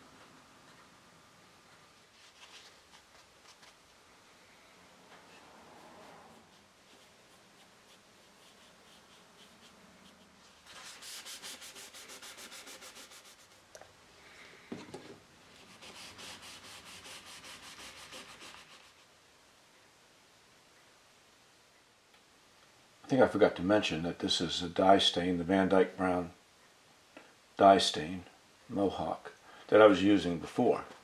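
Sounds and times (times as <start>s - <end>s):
rubbing on wood: 6.0s - 13.6s, 15.6s - 19.0s.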